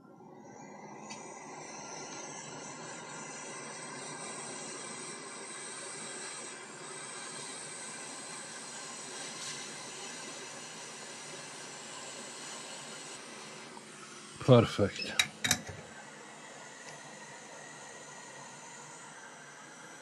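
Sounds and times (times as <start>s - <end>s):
hot air nozzle hissing: 1.5s - 14.9s.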